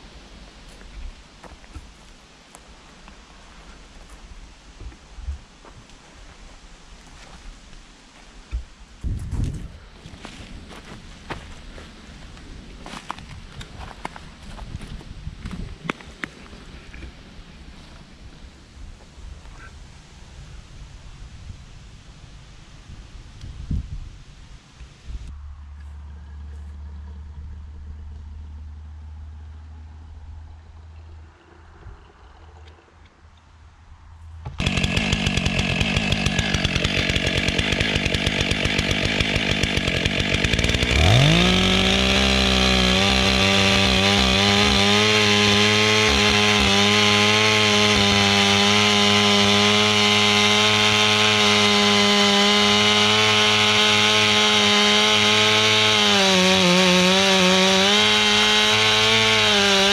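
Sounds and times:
chainsaw running and cutting wood: 34.4s - 59.9s.

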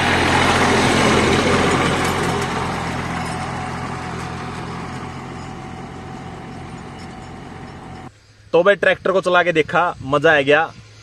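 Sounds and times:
tractor engine passing by: 0.0s - 8.1s.

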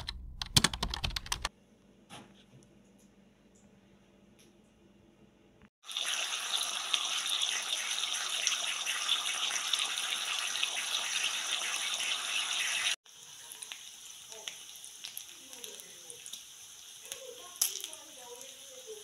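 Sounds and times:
food sizzling in a frying pan: 5.8s - 19.0s.

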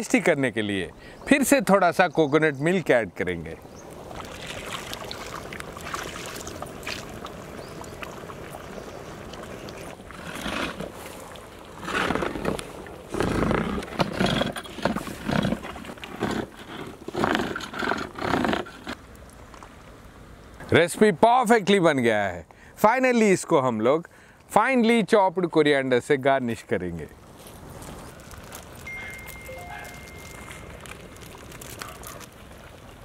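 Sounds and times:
curry sloshing and scraping: 4.1s - 19.0s.

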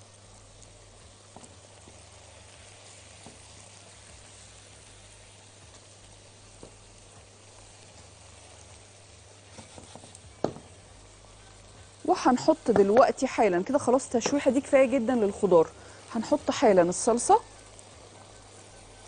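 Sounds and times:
food sizzling in a frying pan: 0.0s - 19.0s
spatula stirring: 5.5s - 10.6s.

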